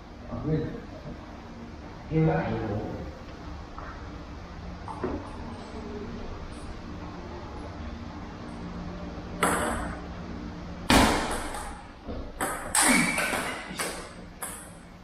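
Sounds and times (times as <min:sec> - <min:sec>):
ping pong ball knocking: 0:09.4 - 0:10.0, 0:10.9 - 0:11.8, 0:12.4 - 0:14.8.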